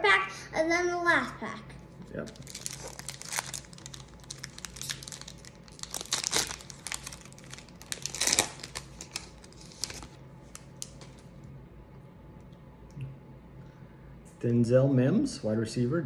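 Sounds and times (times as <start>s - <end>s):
foil wrapper crinkling and tearing: 2.2s - 11.3s.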